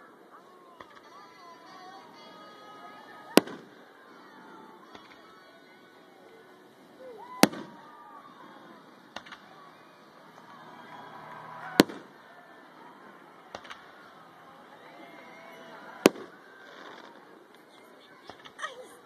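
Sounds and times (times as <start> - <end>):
faint firework double pops: 3.3 - 3.7, 7.4 - 7.8, 9.1 - 9.5, 11.8 - 12.1, 13.5 - 13.9, 16.0 - 18.6
firework shells bursting: 9.1 - 9.6, 11.7 - 12.2, 13.4 - 14.1.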